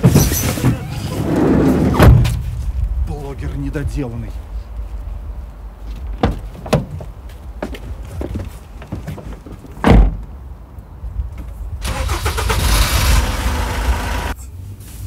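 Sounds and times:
van door slamming: 1.8 - 2.4, 9.8 - 10.3
engine cranking and running: 11.8 - 14.4.

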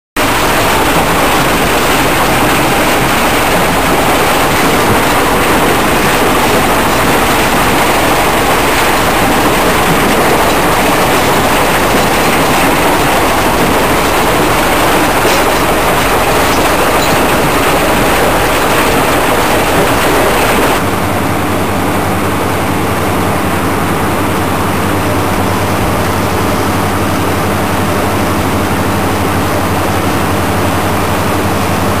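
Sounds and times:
machine hum: 0.1 - 32.0
rocks rattling over steel bars: 0.2 - 20.8.

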